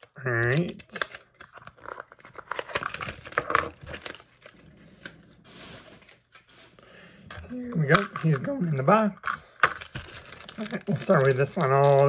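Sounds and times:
packaging clicks: 0:00.0 - 0:04.5, 0:09.2 - 0:12.0
toy packaging crinkling: 0:00.0 - 0:06.5, 0:07.4 - 0:12.0.

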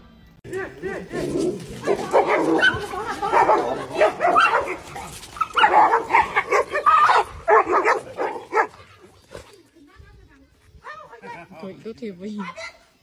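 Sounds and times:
dogs barking and yipping: 0:00.5 - 0:09.6.

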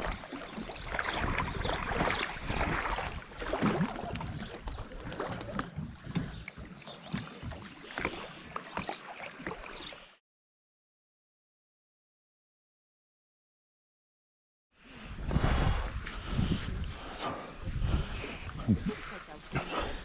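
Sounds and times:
wind and water spray: 0:00.0 - 0:05.9, 0:15.2 - 0:20.0
watercraft engine rumble: 0:00.0 - 0:09.9, 0:14.9 - 0:20.0.

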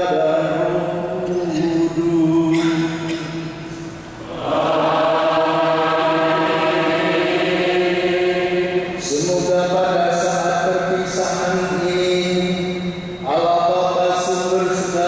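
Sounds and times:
priests singing a chant: 0:00.0 - 0:12.6, 0:13.3 - 0:15.0.

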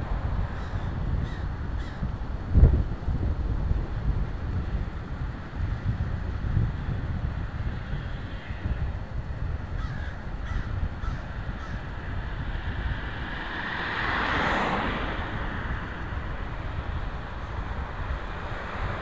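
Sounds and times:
wind on microphone: 0:00.0 - 0:19.0
crow cawing: 0:00.6 - 0:02.0, 0:09.8 - 0:11.9
car passing: 0:09.8 - 0:19.0.

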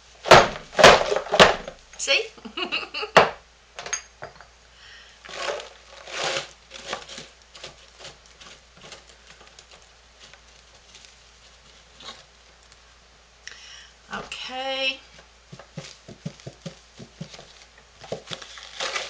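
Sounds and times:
powder pouring into plastic cup: 0:05.2 - 0:09.5.

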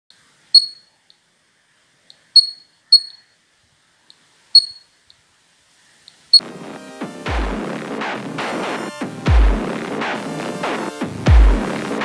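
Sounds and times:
piezo buzzer high-pitched beeps: 0:00.6 - 0:00.9, 0:02.4 - 0:03.2, 0:04.6 - 0:04.9
faint ticks: 0:06.0 - 0:06.3.

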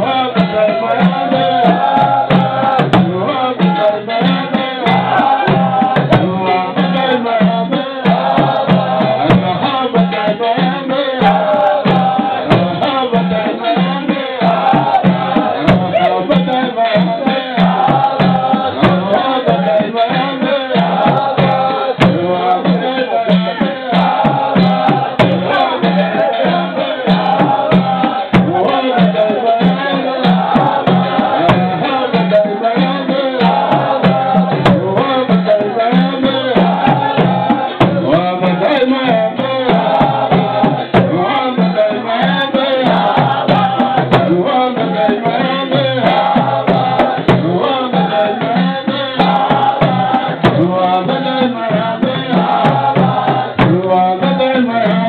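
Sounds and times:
frame drum beats: 0:00.0 - 0:55.0
men chanting a devotional song: 0:00.0 - 0:55.0.

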